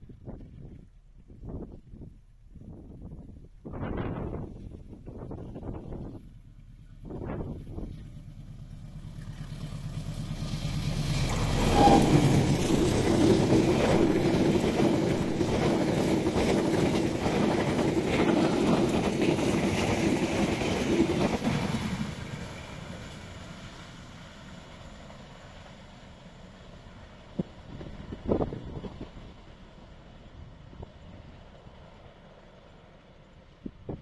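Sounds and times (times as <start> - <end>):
wheels clattering over rail joints: 5.0 - 31.0
passenger train rushing past: 8.7 - 34.0.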